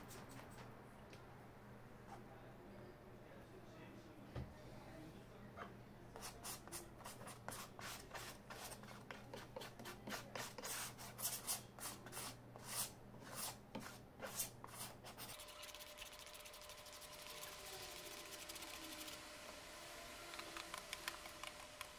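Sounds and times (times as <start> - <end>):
palette knife scraping paint: 6.2 - 19.2.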